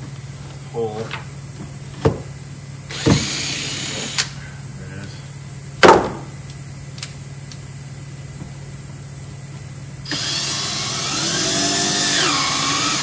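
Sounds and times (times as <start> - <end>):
cordless drill driving screw: 2.9 - 4.3, 10.1 - 13.0.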